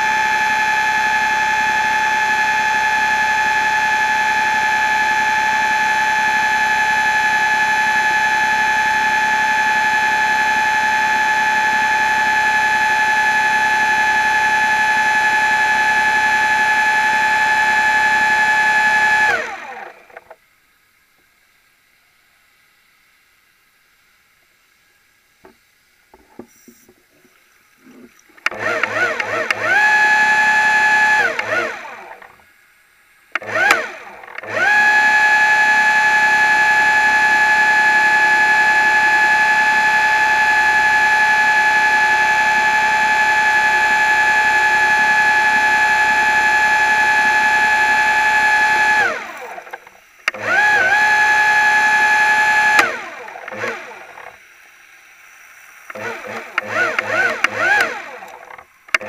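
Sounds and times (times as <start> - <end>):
electric motor whining underwater: 25.4 - 32.4, 33.3 - 59.0.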